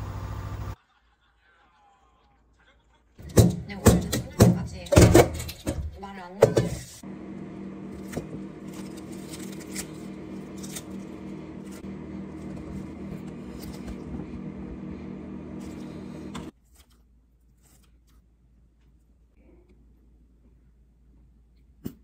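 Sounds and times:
steady appliance hum: 0:00.0 - 0:00.8, 0:03.2 - 0:16.5
lettuce leaves torn and crumpled: 0:08.0 - 0:11.8.

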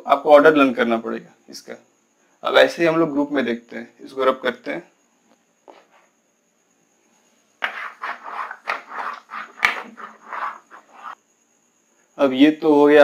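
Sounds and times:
eraser scrubbing a whiteboard: 0:07.6 - 0:11.2.

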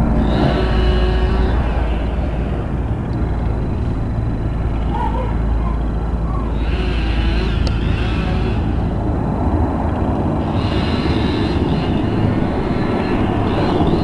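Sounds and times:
helicopter rotors and engines rumbling: 0:00.0 - 0:14.0.

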